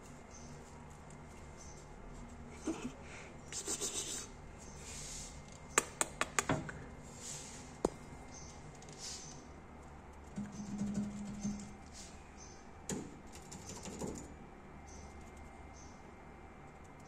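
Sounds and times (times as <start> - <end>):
sharp taps: 5.7 - 6.6.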